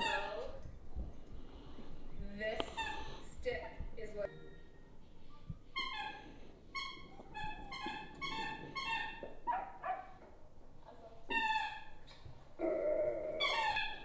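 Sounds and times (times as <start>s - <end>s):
dog whining: 5.8s - 10.2s, 12.6s - 14.0s.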